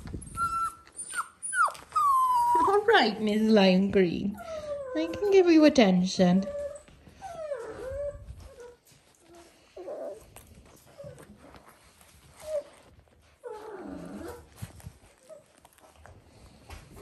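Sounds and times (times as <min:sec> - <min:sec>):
puppies whining: 0:00.0 - 0:05.7, 0:06.4 - 0:17.0
puppies growling: 0:06.5 - 0:17.0.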